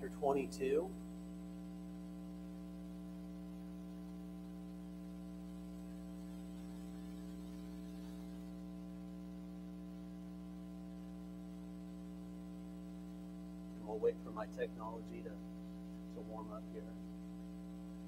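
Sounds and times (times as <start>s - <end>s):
electrical mains hum: 0.0s - 18.0s.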